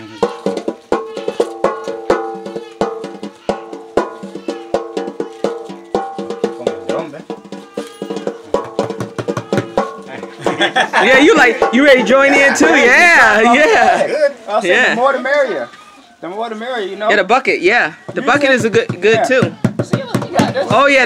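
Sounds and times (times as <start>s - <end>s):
drum strokes ringing: 0.0s - 12.6s, 17.9s - 21.0s.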